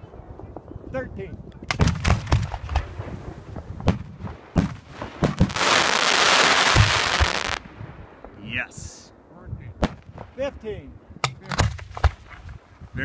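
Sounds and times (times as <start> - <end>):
fireworks bangs: 1.6 - 8.4
fireworks crackling hiss: 1.8 - 7.7.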